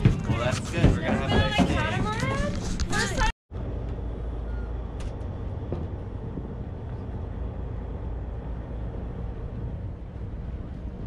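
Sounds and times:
boat engines droning: 0:03.0 - 0:11.0.

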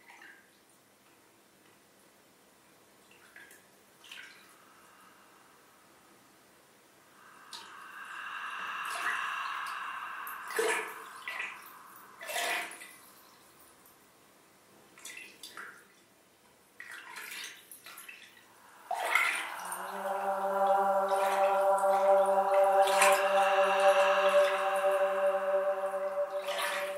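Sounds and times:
water-like splashes and drips: 0:03.0 - 0:04.9, 0:07.2 - 0:13.9, 0:15.0 - 0:16.1, 0:16.8 - 0:26.9
sustained low note: 0:07.2 - 0:13.6, 0:18.6 - 0:26.9
held high tone: 0:07.2 - 0:13.7, 0:18.5 - 0:26.9.

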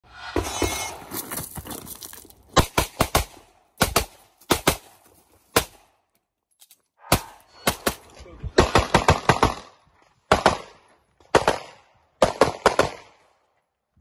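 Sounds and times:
pistol shots: 0:10.3 - 0:13.2.

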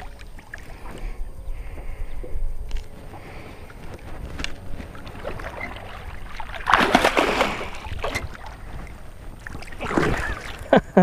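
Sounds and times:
fish splashing in water: 0:05.2 - 0:10.7.

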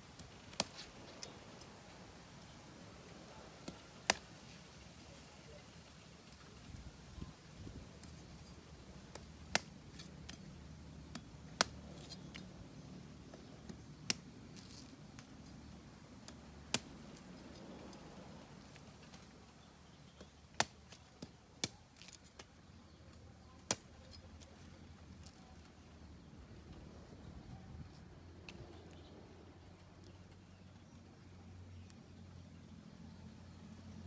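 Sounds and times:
cleaver chopping coconut husk: 0:00.2 - 0:01.3, 0:03.6 - 0:04.4, 0:09.0 - 0:12.5, 0:13.3 - 0:17.4, 0:18.6 - 0:22.9, 0:23.6 - 0:24.2.

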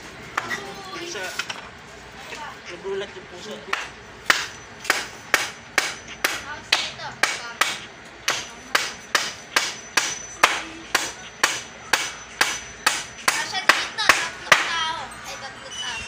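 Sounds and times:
hammer striking wooden chair frame: 0:03.7 - 0:14.7.

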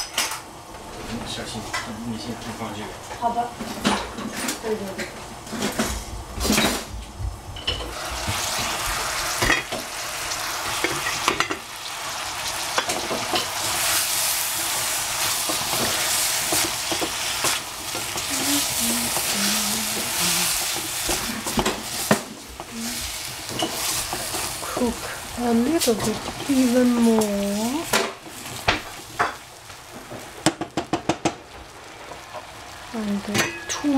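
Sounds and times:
vegetables sizzling in a saucepan: 0:00.0 - 0:33.9
wooden spatula knocking a pan: 0:30.4 - 0:31.4.

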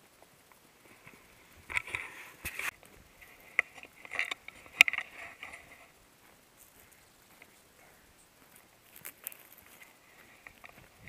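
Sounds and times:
footsteps crunching dry grass: 0:00.0 - 0:11.0
clothing and gear rustling: 0:00.8 - 0:11.0.

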